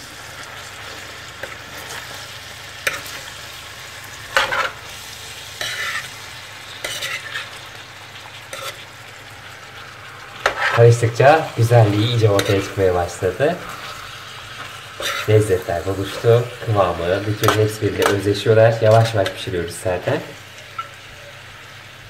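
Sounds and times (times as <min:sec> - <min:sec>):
food sizzling in a frying pan: 0:00.0 - 0:22.0
metal spoon scraping a pan: 0:02.8 - 0:03.3, 0:04.2 - 0:07.7, 0:08.4 - 0:08.9, 0:10.4 - 0:11.0, 0:11.7 - 0:19.5.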